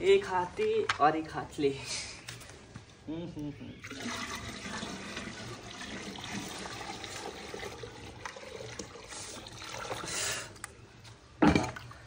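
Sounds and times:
water pouring into a bucket: 3.8s - 10.5s.

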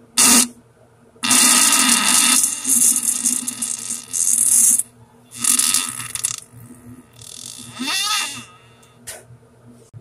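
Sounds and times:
fart sounds: 0.2s - 0.6s, 1.2s - 8.8s.

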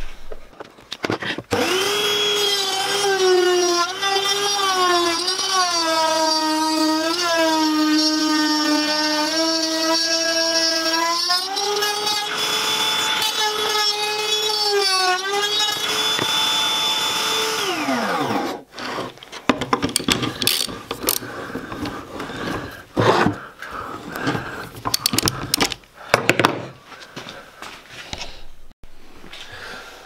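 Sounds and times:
router spinning down: 1.5s - 18.9s
router whining: 1.5s - 19.2s
clicks and knocks of handling: 19.2s - 22.0s, 24.2s - 26.7s.

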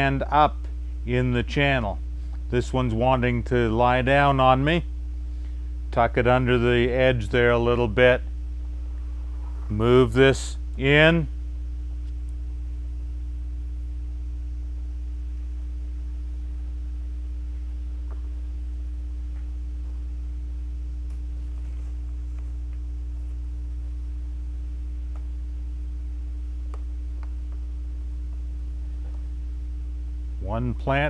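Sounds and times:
low electrical hum: 0.0s - 31.0s.

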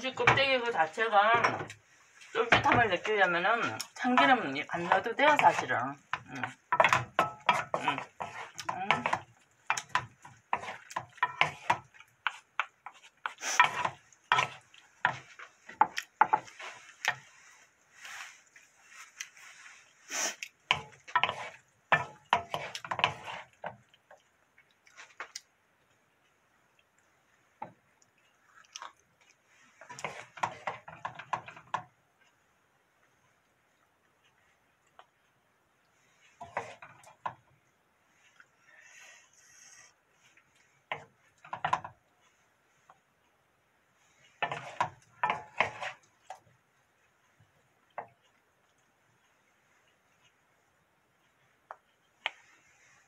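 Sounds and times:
wooden spatula scraping a pan: 0.0s - 23.8s, 29.4s - 31.8s, 36.0s - 37.5s, 38.7s - 42.0s, 44.0s - 46.4s, 52.2s - 53.0s
faint sizzle: 0.0s - 25.2s, 25.9s - 53.0s.

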